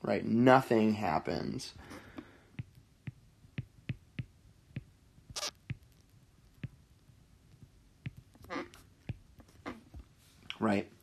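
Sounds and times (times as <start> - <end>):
stylus tapping on tablet screen: 2.6 - 10.1.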